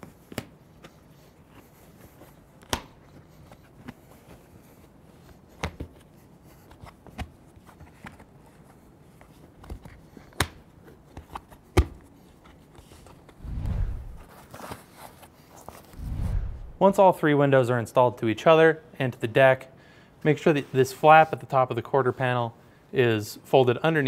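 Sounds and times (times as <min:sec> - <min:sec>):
hands handling vinyl fabric: 0:00.0 - 0:16.0.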